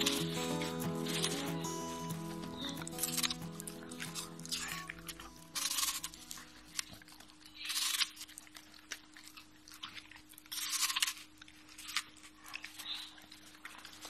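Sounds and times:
dog nibbling food: 2.8s - 14.0s.

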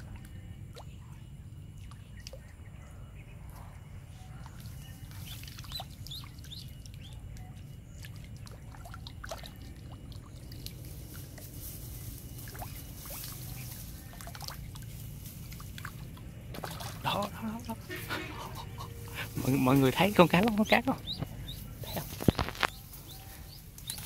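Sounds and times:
low steady rumble: 0.0s - 24.0s
water trickling: 4.4s - 22.1s
duckling chirps: 5.1s - 7.2s, 18.0s - 24.0s.

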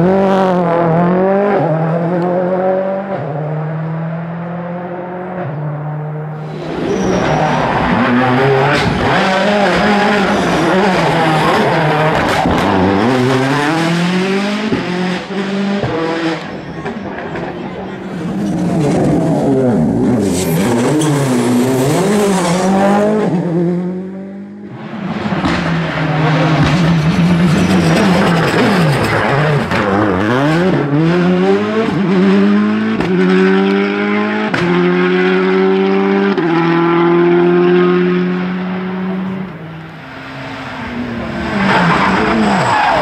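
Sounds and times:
rally car engines revving: 0.0s - 43.0s
tyre squeal: 6.4s - 8.8s, 41.5s - 43.0s.

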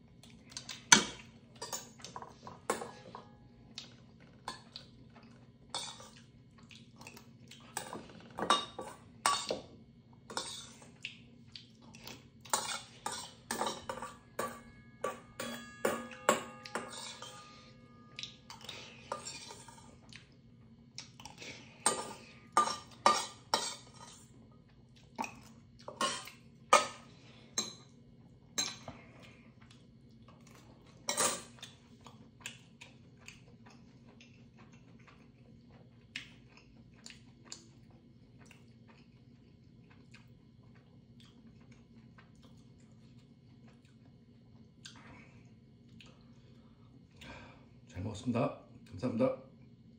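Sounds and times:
metal utensils clinking on steel bowl: 0.9s - 3.3s, 7.7s - 9.6s, 12.5s - 20.0s, 21.8s - 24.3s, 31.1s - 31.6s.

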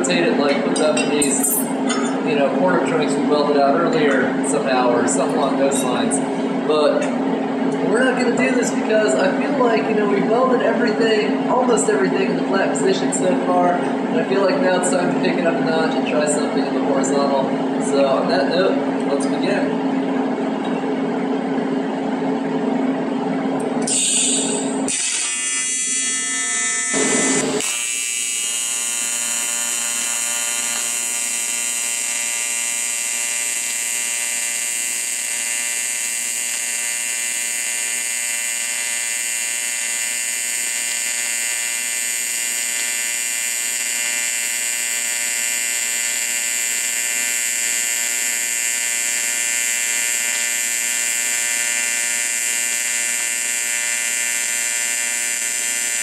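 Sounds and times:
welding arc buzzing: 0.0s - 2.4s, 23.5s - 56.0s.

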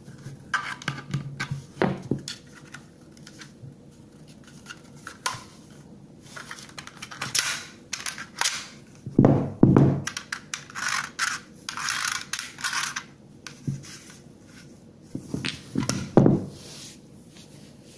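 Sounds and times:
plastic knocks: 9.2s - 10.1s.

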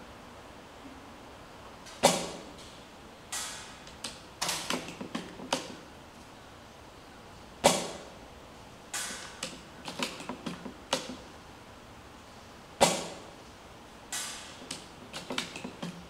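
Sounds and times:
airsoft rifle shot: 2.0s - 2.5s, 7.6s - 8.1s, 12.8s - 13.3s.

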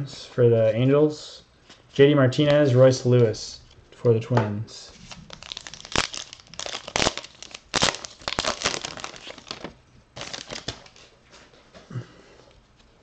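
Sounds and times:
wrapper tearing and crinkling: 5.0s - 11.0s.

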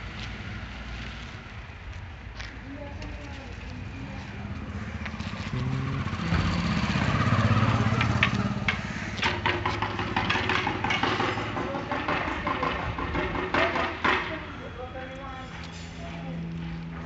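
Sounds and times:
vehicle engine running: 2.7s - 17.0s
sharp knocks and clicks: 7.9s - 14.4s.

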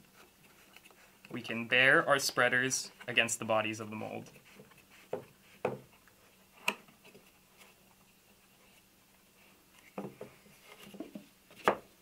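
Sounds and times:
soft knocks and rubs on wood: 4.3s - 6.0s.

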